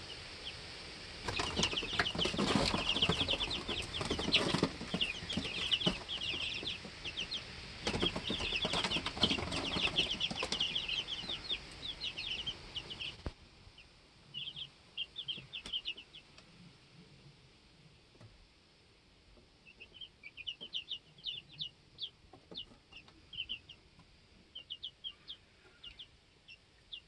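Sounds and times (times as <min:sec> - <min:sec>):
chicks peeping: 0:00.0 - 0:17.3, 0:19.4 - 0:27.0
wing flapping and scuffling: 0:01.2 - 0:11.4.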